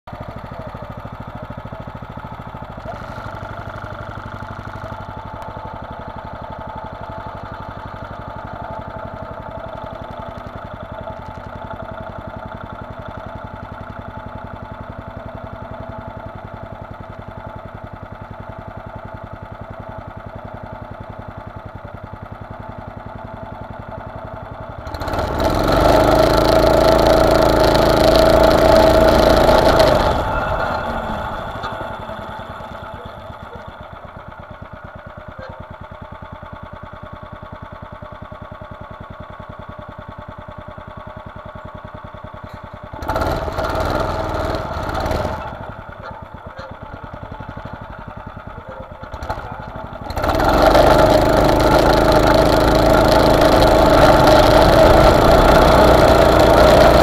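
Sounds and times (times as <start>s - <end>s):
buggy engine idling and revving: 0.0s - 57.0s.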